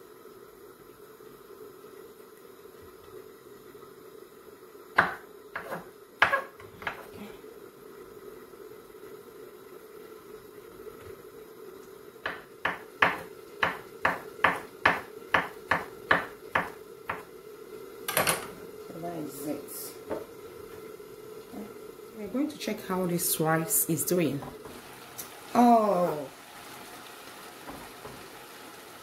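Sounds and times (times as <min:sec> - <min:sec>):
knife chopping on wooden board: 0:05.0 - 0:07.1, 0:12.2 - 0:17.3.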